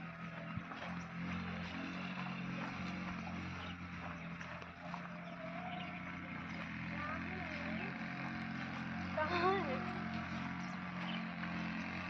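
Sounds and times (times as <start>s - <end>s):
low motor hum: 0.0s - 12.0s
faint wavering calls: 3.5s - 11.3s.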